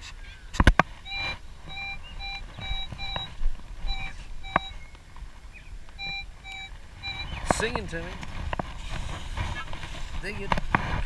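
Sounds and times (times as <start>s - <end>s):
sharp clicks: 0.6s - 5.3s
metal detector short beeps: 1.0s - 4.9s, 6.0s - 7.9s.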